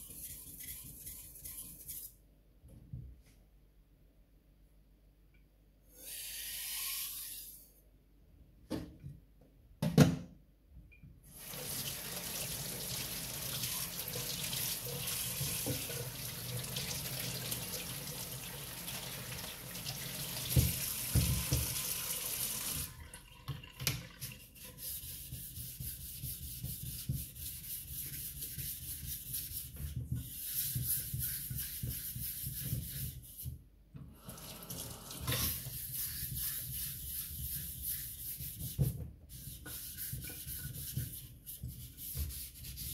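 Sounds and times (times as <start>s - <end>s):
block rubbed on a whetstone: 0.0s - 2.1s, 24.7s - 33.5s, 35.4s - 42.9s
tap water running into a sink: 11.3s - 24.6s, 34.2s - 35.6s.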